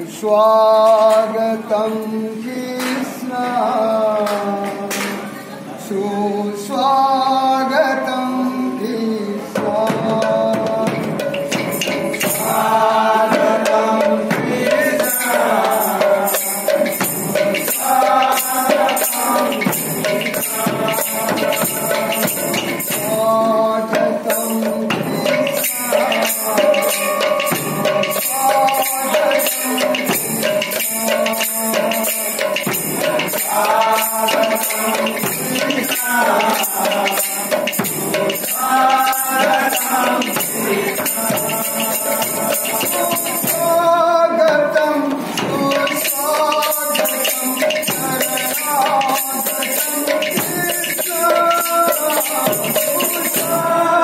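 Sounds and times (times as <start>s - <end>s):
men singing a chant: 0.0s - 5.2s, 5.8s - 54.0s
barrel drum: 9.6s - 53.9s
small hand cymbals clashing: 11.0s - 12.9s, 24.2s - 43.8s, 45.2s - 53.6s.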